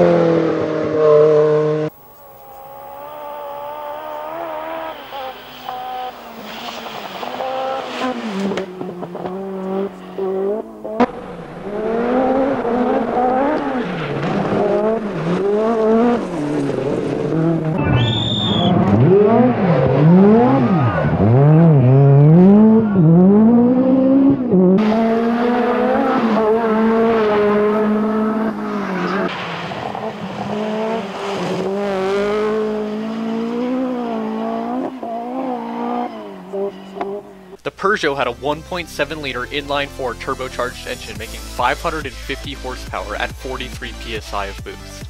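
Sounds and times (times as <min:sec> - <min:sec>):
rally car engine revving: 0:00.0 - 0:45.0
brief high whistle: 0:17.8 - 0:18.8.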